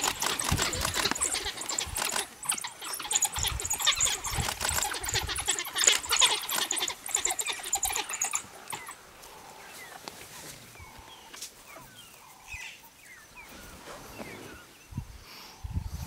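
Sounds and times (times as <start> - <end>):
wild dogs twittering: 0.0 - 9.8.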